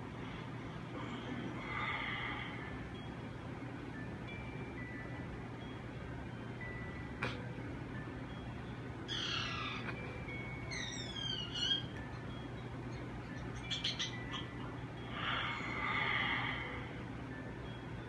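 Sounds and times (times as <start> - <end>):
creature-like chirping squeals: 10.7 - 11.9.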